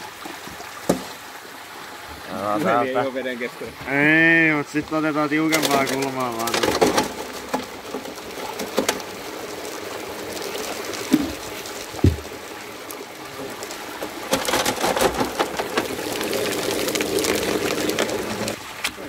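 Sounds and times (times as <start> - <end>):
water rushing down a metal sluice: 0.0 - 19.0
clattering: 5.5 - 9.0, 14.3 - 16.4
dull thumps: 11.1 - 12.4.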